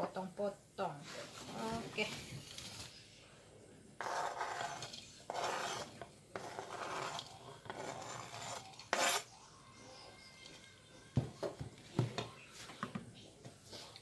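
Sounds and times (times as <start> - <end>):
knife scraping cutting board: 4.0 - 9.3.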